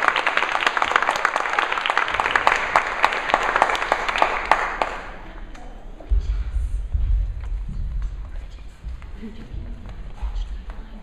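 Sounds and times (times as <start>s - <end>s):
audience applauding: 0.0s - 5.3s.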